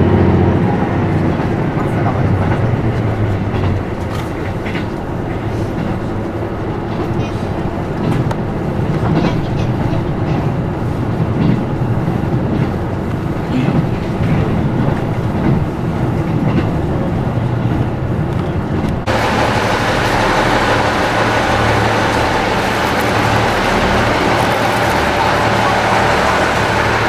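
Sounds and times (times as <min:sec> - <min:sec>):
standing train humming: 0:00.0 - 0:27.0
train rumbling at speed: 0:00.0 - 0:27.0
station platform hiss: 0:19.1 - 0:27.0.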